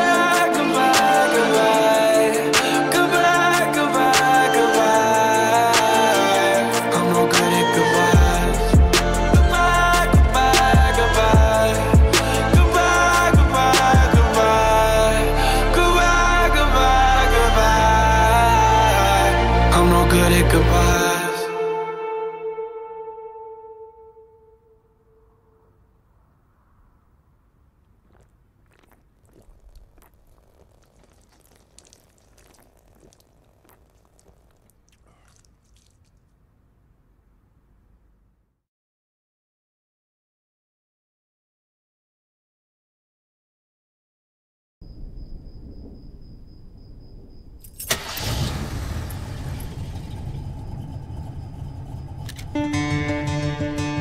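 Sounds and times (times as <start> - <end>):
acoustic guitar: 0.0 - 21.5, 49.6 - 54.0
faint clicks and crackles: 27.8 - 36.3
engine starting and rumbling: 47.6 - 53.3.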